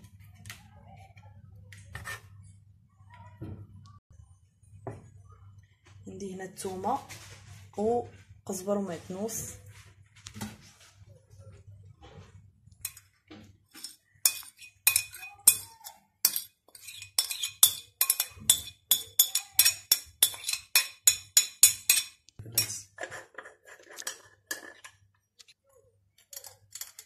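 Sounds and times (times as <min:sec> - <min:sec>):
metal spoon clinking on plate: 0:12.8 - 0:13.0, 0:13.8 - 0:22.8, 0:26.2 - 0:27.0.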